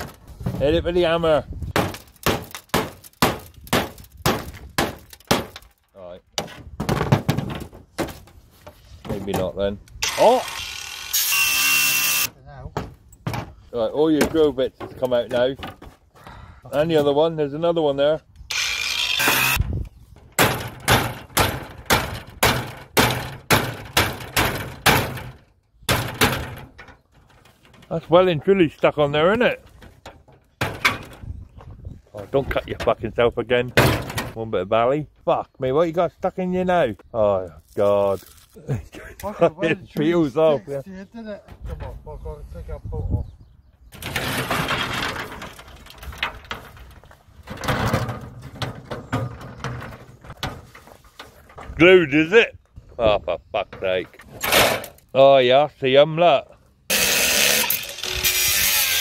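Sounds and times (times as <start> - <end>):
sharp metal knocks: 1.7 - 5.8, 20.3 - 27.9
sheet metal scraping and rattling: 20.3 - 31.4, 43.9 - 52.4, 53.8 - 55.1.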